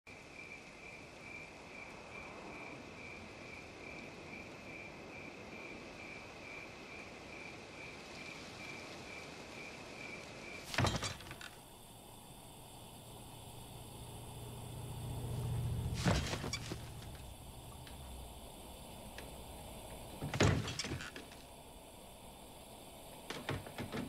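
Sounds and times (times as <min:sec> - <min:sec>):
cricket chirping: 0:00.1 - 0:24.0
low hum: 0:11.2 - 0:23.8.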